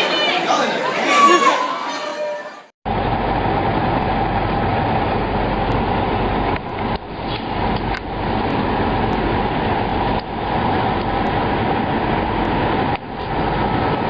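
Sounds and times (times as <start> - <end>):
trucks idling: 2.9 - 14.0.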